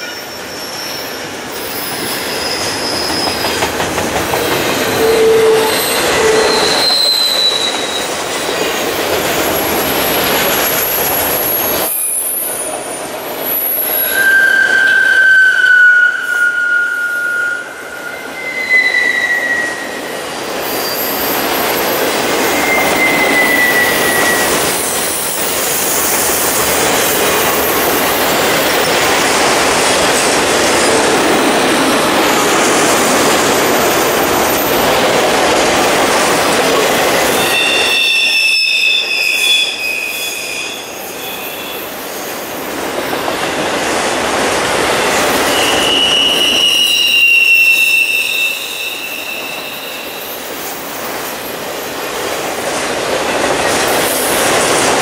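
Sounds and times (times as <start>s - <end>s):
high-pitched wheel squeals: 0.0s - 3.6s, 5.0s - 8.1s, 13.4s - 25.4s, 37.2s - 42.0s, 45.3s - 50.5s
train wheels rolling on rail: 0.0s - 55.0s.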